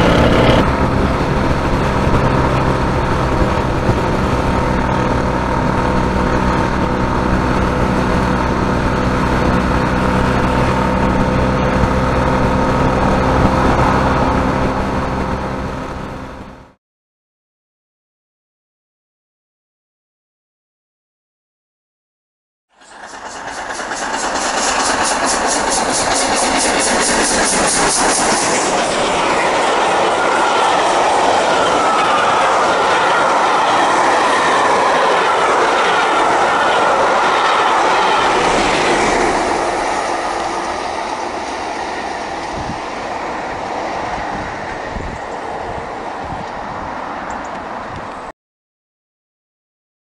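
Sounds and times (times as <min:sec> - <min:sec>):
train wheels clattering over rail joints: 0:22.8 - 0:43.5.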